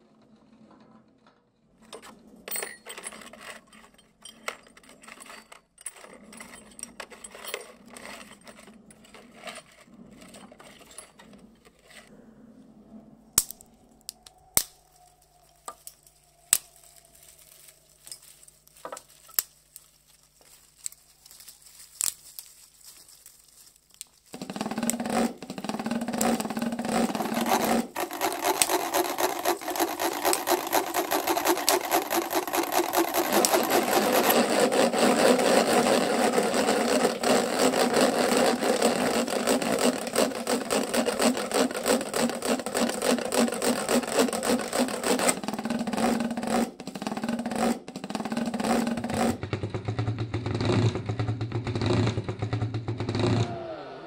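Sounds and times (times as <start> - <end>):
chainsaw cutting wood: 1.9 - 11.1, 24.3 - 54.0.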